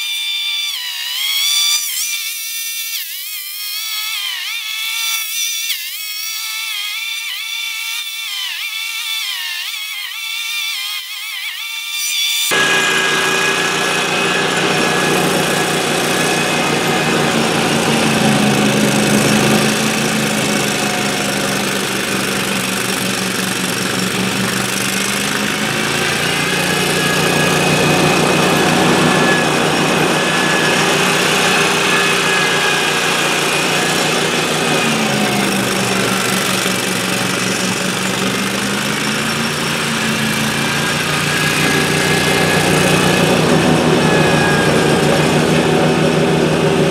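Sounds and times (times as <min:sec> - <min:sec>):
mower engine running: 0:12.5 - 0:46.9
snowblower throwing snow: 0:12.6 - 0:46.9.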